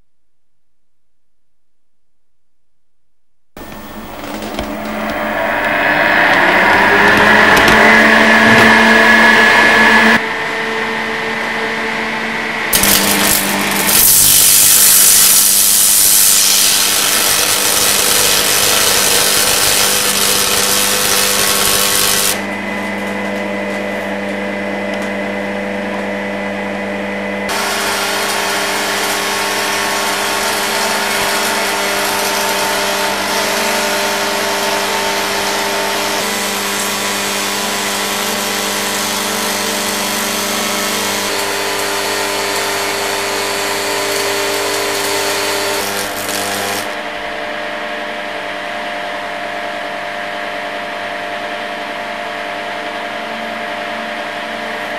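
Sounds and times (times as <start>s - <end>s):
electric hum: 2.5s - 49.1s
arc lamp hissing: 12.8s - 22.4s, 27.5s - 47.0s
sharp cracks: 12.8s - 22.4s, 39.8s - 47.0s.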